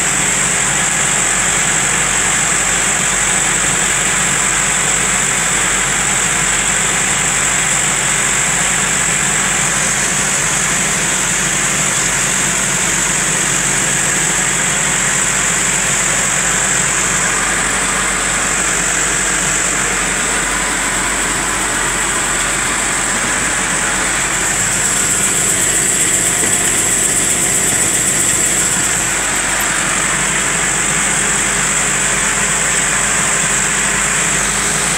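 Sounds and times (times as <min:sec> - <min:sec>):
tractor diesel engine running: 0:00.0 - 0:34.9
high-pitched whine: 0:16.8 - 0:30.9.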